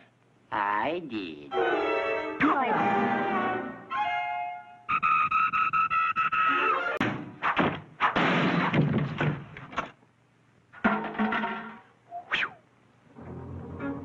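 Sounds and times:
orchestral music: 0:01.5 - 0:04.8, 0:13.2 - 0:14.0
sharp knocks and clatter: 0:07.0 - 0:10.0, 0:10.8 - 0:11.9.

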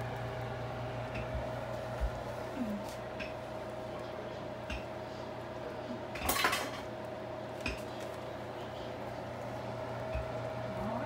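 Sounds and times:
steady hum: 0:00.0 - 0:11.0
metal cookware clinking: 0:06.1 - 0:06.9.

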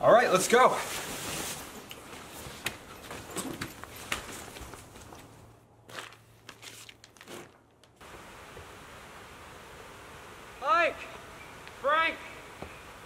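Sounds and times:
faint outdoor hiss: 0:00.0 - 0:13.0
sleeping bags rustling: 0:00.2 - 0:08.1.

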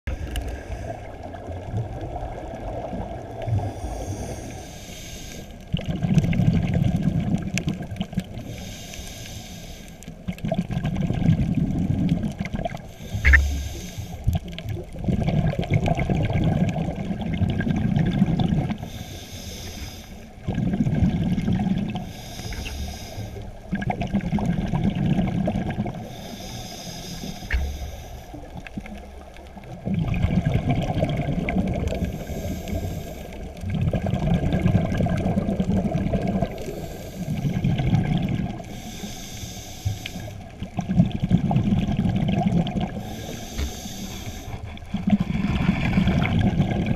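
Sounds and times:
diver breathing through regulator: 0:00.1 - 0:01.2, 0:03.5 - 0:05.7, 0:08.4 - 0:10.3, 0:12.8 - 0:14.6, 0:18.8 - 0:20.5, 0:21.8 - 0:23.7, 0:25.9 - 0:29.0, 0:31.9 - 0:33.7, 0:36.3 - 0:40.6, 0:42.7 - 0:46.7
exhaust bubbles rushing: 0:29.8 - 0:32.0, 0:33.6 - 0:36.5.

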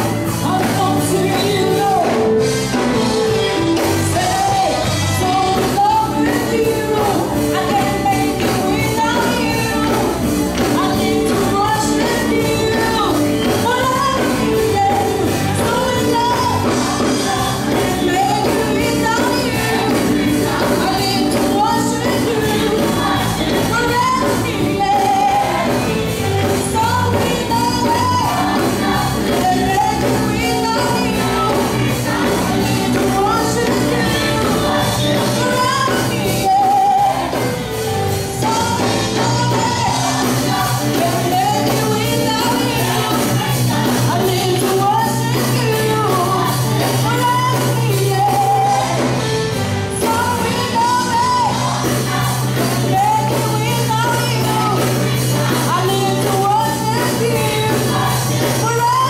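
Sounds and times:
band playing: 0:00.0 - 0:59.0
woman singing into microphone: 0:00.0 - 0:59.0
choir singing: 0:16.0 - 0:26.3, 0:26.9 - 0:37.4, 0:38.8 - 0:44.4, 0:50.4 - 0:59.0.

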